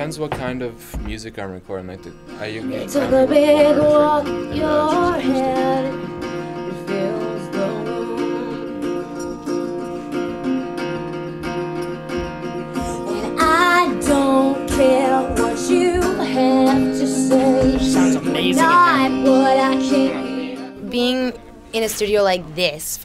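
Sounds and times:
acoustic guitar playing: 0.0 - 22.7
person singing: 2.4 - 10.3, 12.8 - 20.9.

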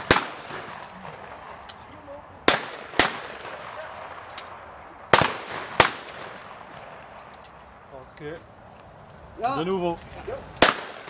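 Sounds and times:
loud shotgun shots: 0.0 - 1.7, 2.4 - 4.3, 5.1 - 7.2, 10.6 - 11.0
faint gunshot cracks: 2.5 - 7.0, 10.6 - 11.0.

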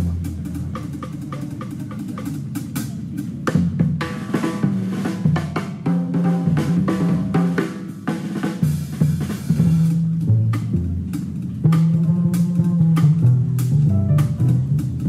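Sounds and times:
jazz band playing live: 0.0 - 15.0
quick dense drum strikes: 11.7 - 15.0.

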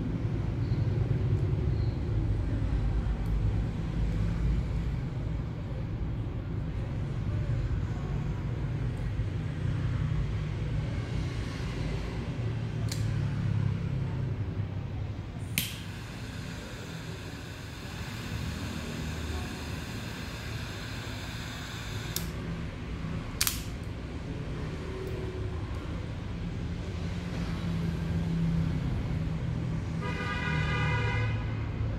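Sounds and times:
lighter ignition click: 15.5 - 15.9, 22.1 - 22.4, 23.4 - 23.8
torch flame hissing: 15.6 - 22.4
lighter lid snapping shut: 23.4 - 23.8.

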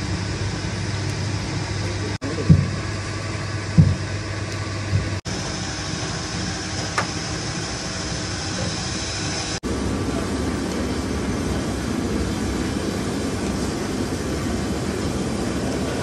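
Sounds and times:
low mechanical hum: 0.0 - 16.0
dull thumps: 2.4 - 2.8, 3.7 - 4.1.

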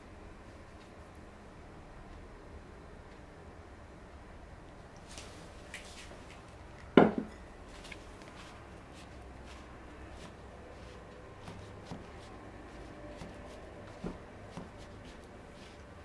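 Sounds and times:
dough scraper cutting dough: 8.8 - 16.0.

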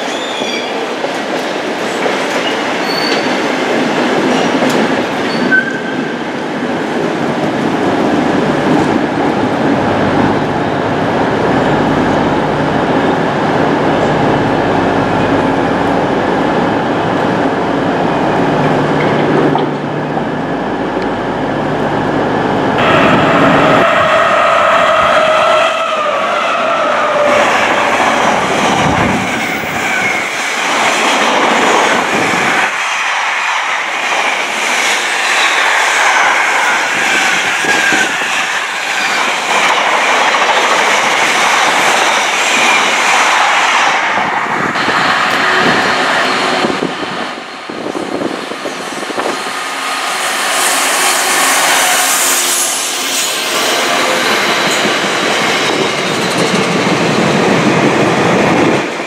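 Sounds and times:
train wheels clattering on rails: 0.0 - 9.4, 26.6 - 59.0
high tone from train wheels: 4.3 - 6.2, 44.7 - 57.1.

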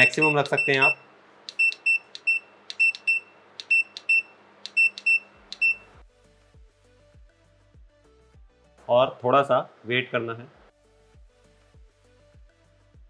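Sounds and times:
high electronic beeps: 0.0 - 5.9
background music: 5.0 - 13.0.

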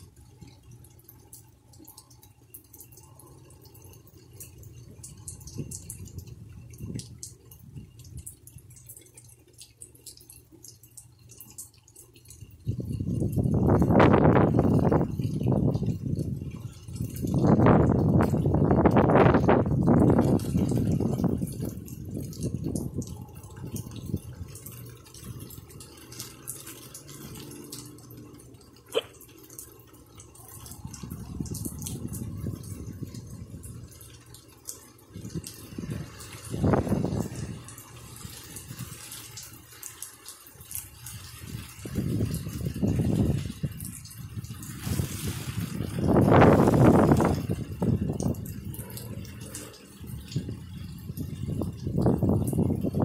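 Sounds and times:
low steady rumble: 0.0 - 39.5
raindrops ticking: 0.0 - 53.0.

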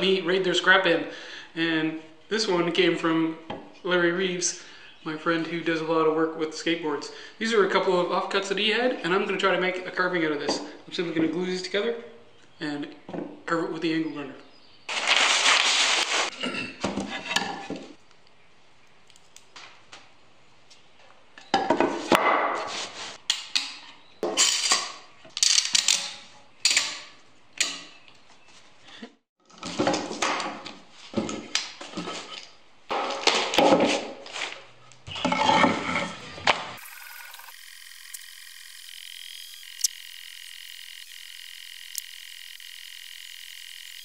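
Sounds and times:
stiff paper rustling: 14.9 - 16.3.

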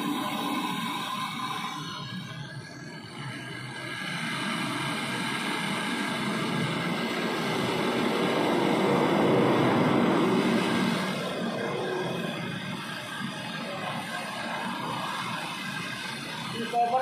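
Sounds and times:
torch flame hissing: 0.0 - 17.0.

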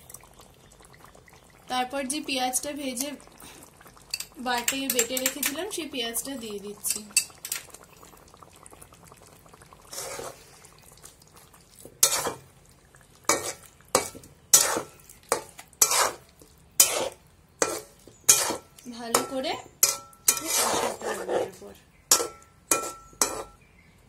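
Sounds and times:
metal spatula scraping a pan: 9.9 - 10.4, 12.0 - 12.4, 13.3 - 16.2, 16.8 - 23.6.

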